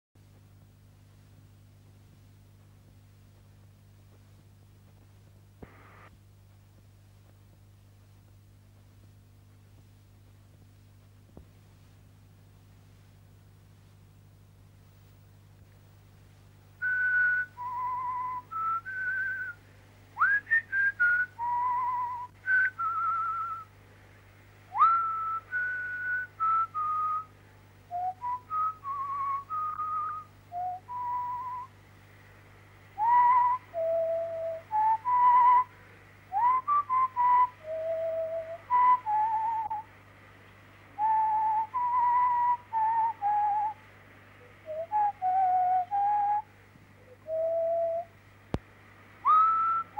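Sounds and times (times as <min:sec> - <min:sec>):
person whistling a slow tune: 0:16.8 - 0:19.6, 0:20.2 - 0:23.7, 0:24.7 - 0:27.3, 0:27.9 - 0:31.7, 0:33.0 - 0:39.9, 0:41.0 - 0:43.8, 0:44.6 - 0:46.5, 0:47.1 - 0:48.1, 0:49.2 - 0:49.9.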